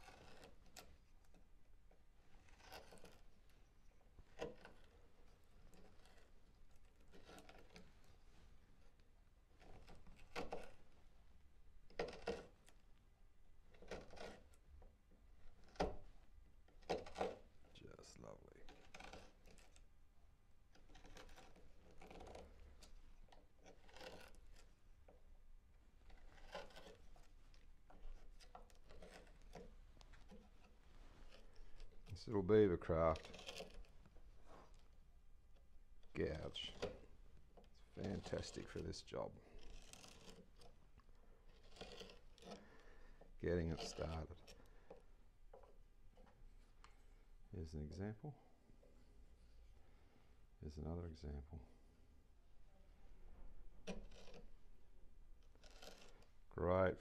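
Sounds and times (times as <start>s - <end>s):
gouge cutting wood: 0.0s - 1.4s, 2.4s - 3.3s, 4.3s - 7.8s, 11.9s - 12.8s, 13.8s - 14.6s, 16.8s - 17.6s, 18.6s - 19.9s, 20.8s - 24.8s, 26.0s - 32.2s, 32.8s - 34.9s, 39.5s - 45.0s, 53.8s - 54.6s, 55.4s - 56.4s.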